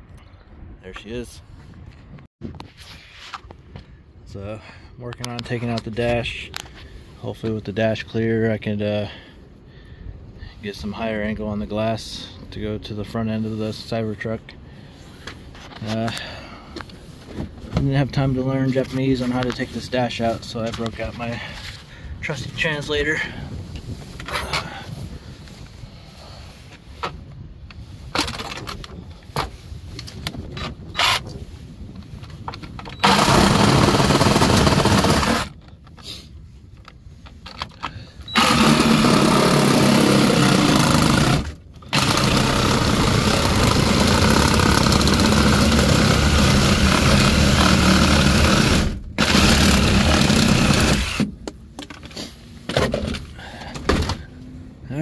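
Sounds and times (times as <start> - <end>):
power saw cutting plastic: 30.9 - 31.3, 33.0 - 35.6, 38.3 - 51.3.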